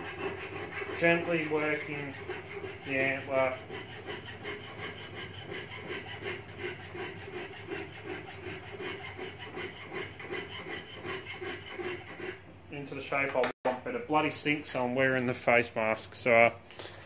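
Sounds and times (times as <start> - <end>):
file rasping on antler: 0.0 - 12.5.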